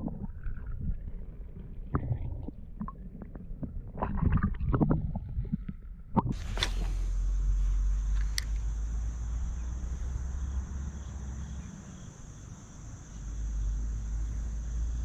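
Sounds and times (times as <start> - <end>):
underwater knocks and gurgles: 0.0 - 6.4
muffled underwater rumble: 0.0 - 10.1
open-air hiss: 6.4 - 15.0.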